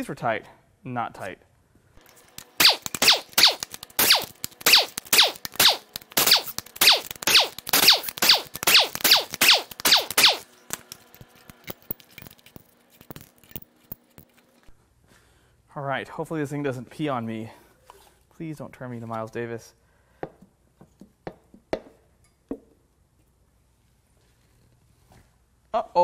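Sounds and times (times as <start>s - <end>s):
impact wrench hammering: 2.0s - 12.4s.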